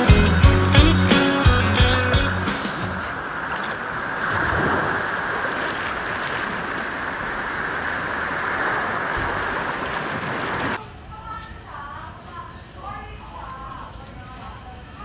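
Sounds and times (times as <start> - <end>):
steady rushing noise: 2.4 - 10.8.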